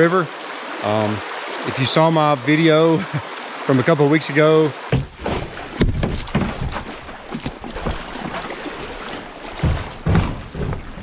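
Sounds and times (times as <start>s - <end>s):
water rushing: 0.0s - 11.0s
heavy thuds: 4.9s - 8.4s, 9.5s - 11.0s
boat knocking against rock: 4.9s - 8.5s, 9.1s - 11.0s.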